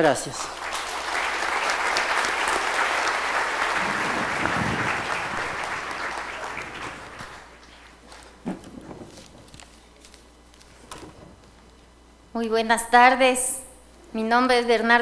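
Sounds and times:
audience applauding: 0:00.0 - 0:09.2.

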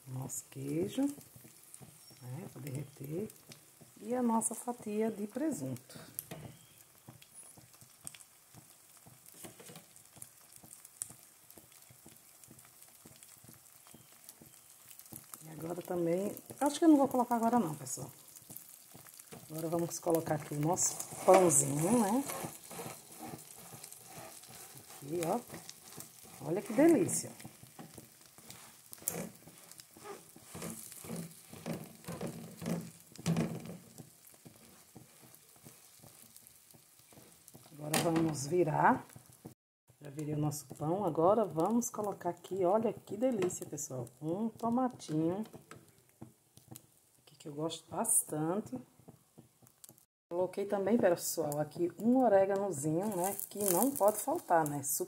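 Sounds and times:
fat popping and crackling: 0:00.0 - 0:47.4, 0:48.0 - 0:50.1, 0:50.8 - 0:55.0
egg sizzling in a frying pan: 0:00.0 - 0:55.0.

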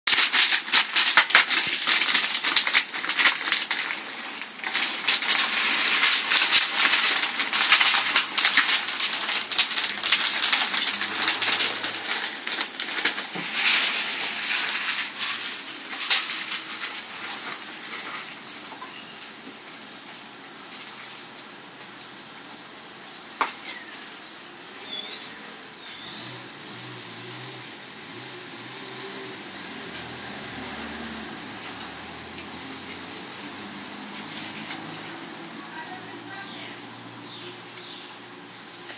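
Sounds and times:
plastic bag crinkling: 0:00.1 - 0:20.0, 0:29.5 - 0:36.7.

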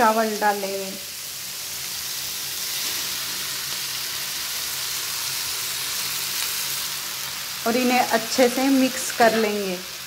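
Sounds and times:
vegetables sizzling in hot oil: 0:00.0 - 0:10.0.

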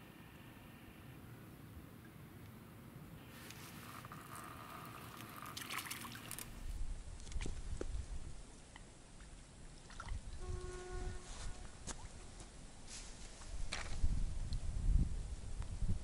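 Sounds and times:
water splashing and trickling: 0:03.2 - 0:08.0, 0:08.6 - 0:10.6.

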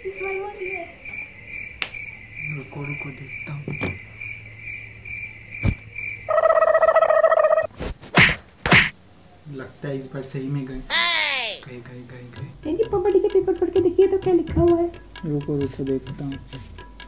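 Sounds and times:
cricket chirping: 0:00.0 - 0:07.7
faint knocks: 0:02.9 - 0:04.0, 0:12.3 - 0:17.0.

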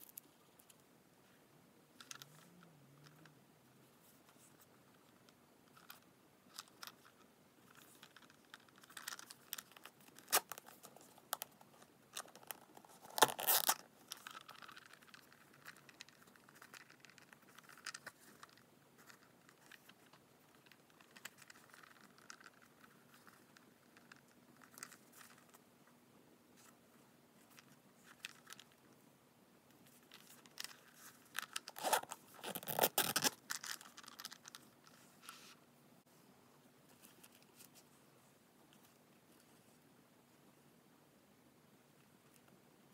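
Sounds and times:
hands scraping and rustling a pouch: 0:04.0 - 0:25.7, 0:29.8 - 0:35.6, 0:36.9 - 0:38.1
zipper of a small pouch: 0:13.2 - 0:13.8, 0:31.6 - 0:33.4.

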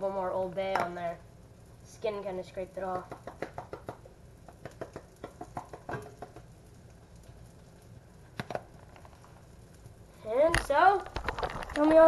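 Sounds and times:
fish frying in butter: 0:01.9 - 0:10.1
light pops and clicks: 0:02.9 - 0:09.9.

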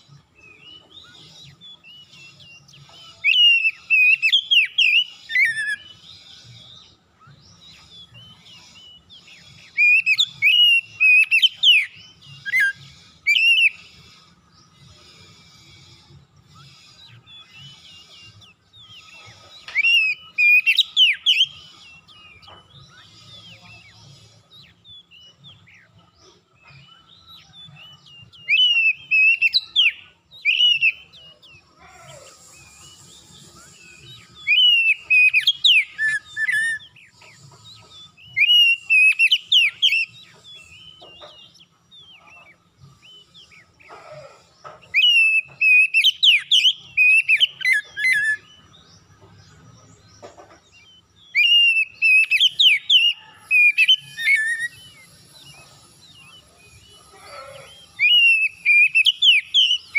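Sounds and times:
bird singing whistled phrases: 0:00.2 - 0:06.0, 0:06.6 - 0:13.8, 0:26.8 - 0:37.1, 0:38.3 - 0:41.0, 0:44.3 - 0:49.6, 0:51.3 - 0:59.9.

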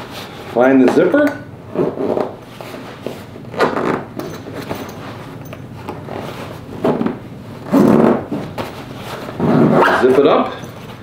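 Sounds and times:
fabric rustling and scraping: 0:00.0 - 0:01.0, 0:01.6 - 0:11.0
zipper: 0:01.7 - 0:02.8, 0:03.5 - 0:04.8, 0:05.8 - 0:10.3.

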